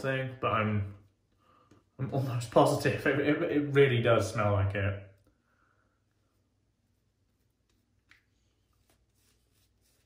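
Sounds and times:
shaving brush swishing: 6.8s - 10.0s.

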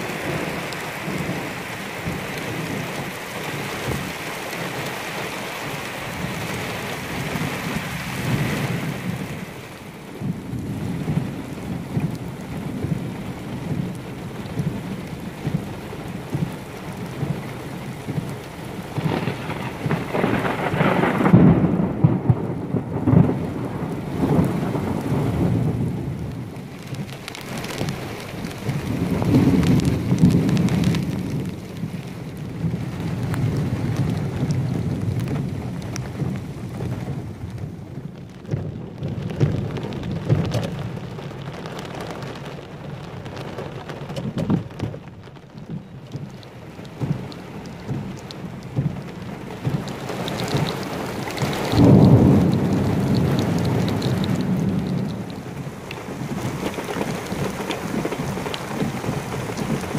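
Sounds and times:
heavy rain hissing on ground: 0.0s - 59.9s
rumbling wind gusts: 0.0s - 59.9s
wind-driven rain rushing: 0.0s - 59.9s.

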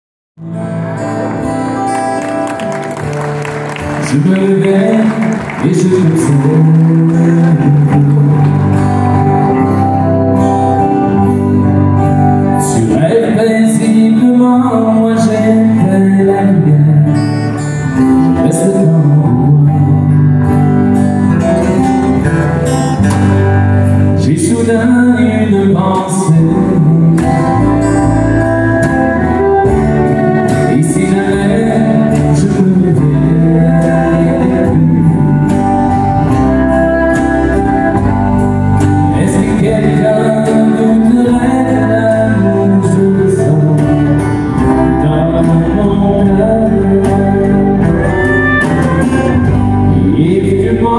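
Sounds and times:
acoustic guitar strumming: 0.4s - 50.9s
man singing: 3.9s - 50.9s
deep bass: 4.0s - 50.9s.

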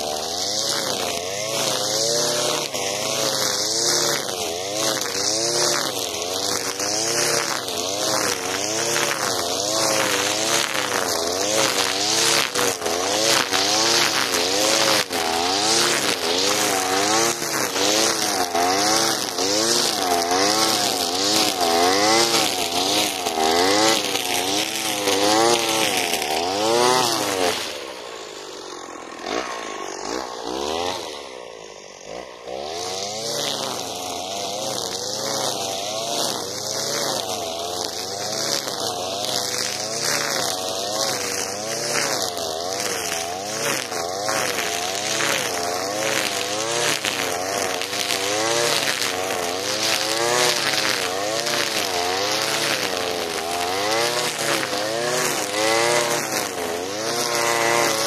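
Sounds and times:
brushcutter engine running: 0.0s - 58.0s
trimmer line cutting grass: 0.0s - 58.0s.

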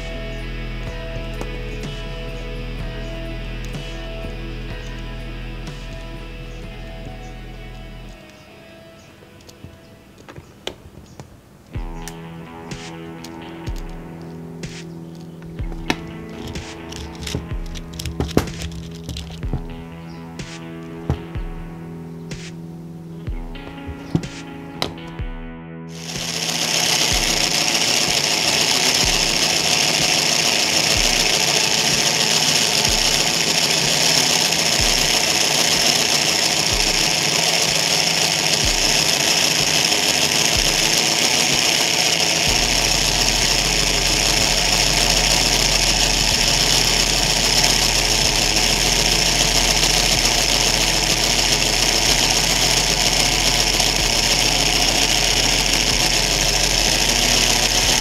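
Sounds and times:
electric motor whirring gears: 0.0s - 8.4s, 15.6s - 19.8s, 25.9s - 58.0s
steady low hum: 0.0s - 10.1s, 11.5s - 58.0s.

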